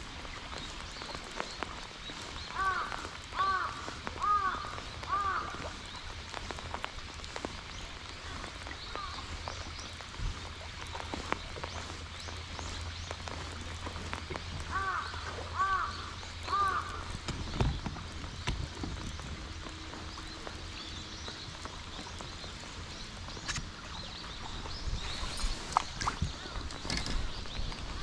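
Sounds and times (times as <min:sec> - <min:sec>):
light rain on water: 0:00.0 - 0:28.0
crow cawing: 0:02.6 - 0:05.6, 0:14.7 - 0:17.1.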